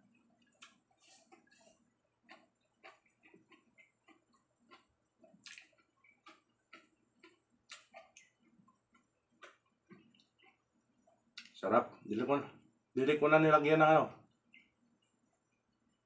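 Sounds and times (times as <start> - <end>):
person chewing with mouth clicks: 0.1 - 11.6, 14.4 - 15.5.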